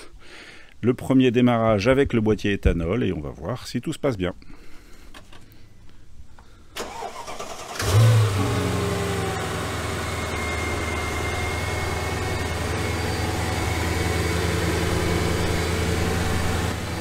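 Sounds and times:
car engine starting and idling: 0:06.8 - 0:17.0.

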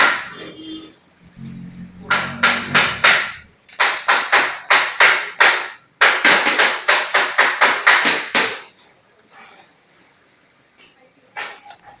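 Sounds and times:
sharp strikes on metal: 0:02.0 - 0:06.2.

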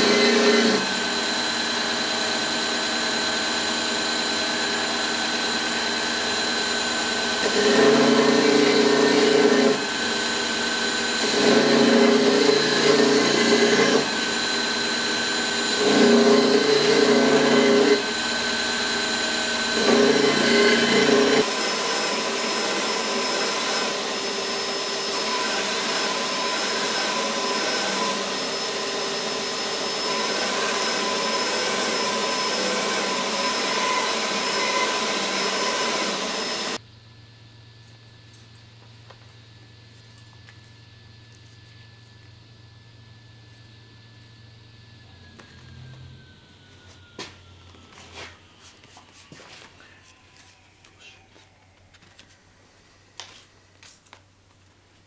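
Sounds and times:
belt grinder grinding steel: 0:00.0 - 0:36.8.

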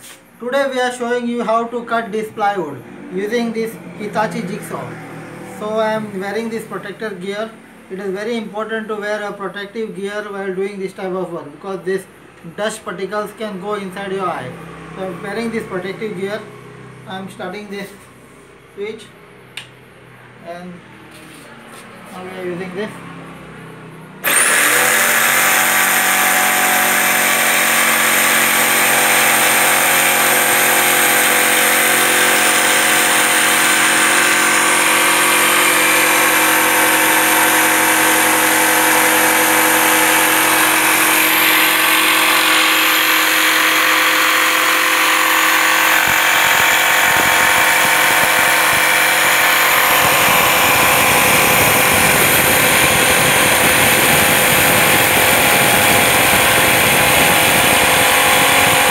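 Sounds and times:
jigsaw cutting plywood: 0:24.2 - 0:58.9.

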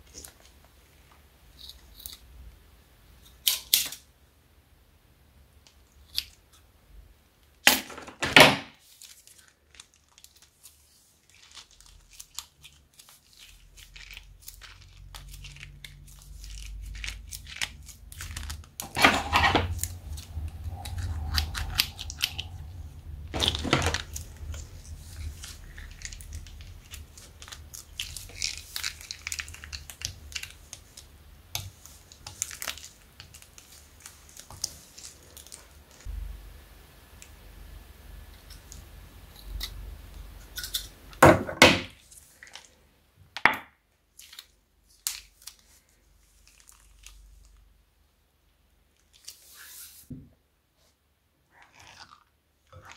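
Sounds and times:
plastic bag crinkling: 0:08.8 - 0:36.1, 0:44.1 - 0:47.7
slime crackling and squishing: 0:08.8 - 0:36.1, 0:44.0 - 0:47.9, 0:51.5 - 0:52.9.

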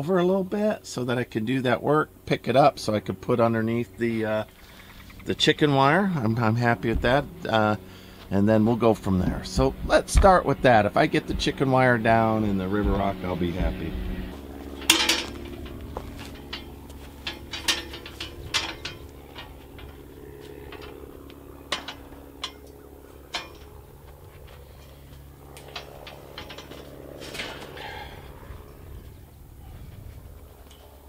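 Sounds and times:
metal hand truck rattling: 0:14.4 - 0:29.0
sharp metal knocks: 0:14.6 - 0:24.4, 0:25.2 - 0:28.2.

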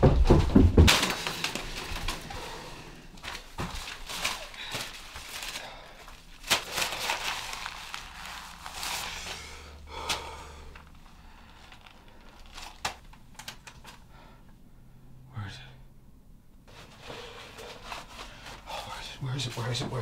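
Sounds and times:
sharp knocks: 0:00.0 - 0:01.2
paper rustling and crinkling: 0:00.8 - 0:09.7, 0:10.8 - 0:14.0, 0:16.7 - 0:18.7.

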